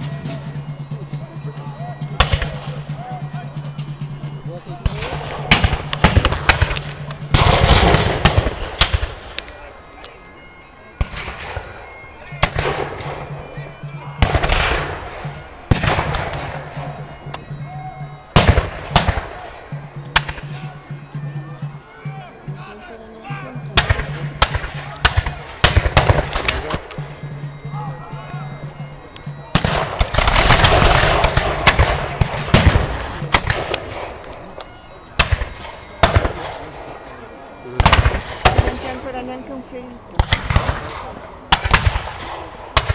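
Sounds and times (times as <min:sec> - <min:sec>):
musket volley firing: 0:04.8 - 0:09.4, 0:12.4 - 0:13.3, 0:14.2 - 0:17.0, 0:18.4 - 0:19.5, 0:23.8 - 0:26.9, 0:29.5 - 0:34.2, 0:35.2 - 0:36.6, 0:37.8 - 0:39.0, 0:40.2 - 0:42.9
musket shots: 0:29.5 - 0:34.1.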